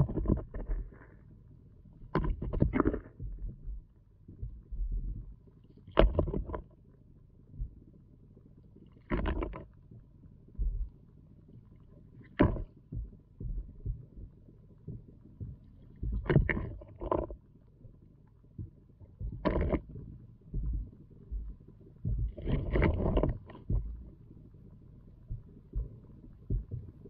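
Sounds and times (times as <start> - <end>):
rocks clunking underwater: 0.0 - 1.1, 2.1 - 3.5, 5.9 - 6.7, 9.0 - 9.8, 12.3 - 14.0, 16.0 - 17.4, 19.0 - 19.9, 20.5 - 24.0
low watery rumble: 0.0 - 27.0.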